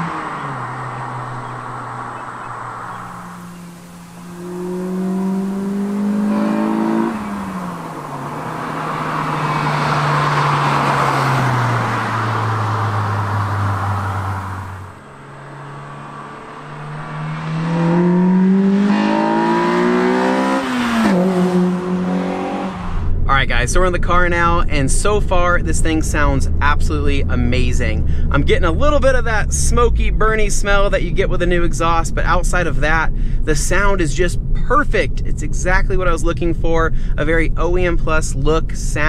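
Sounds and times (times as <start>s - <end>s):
car accelerating past: 0.0s - 23.3s
car engine revving: 0.0s - 39.0s.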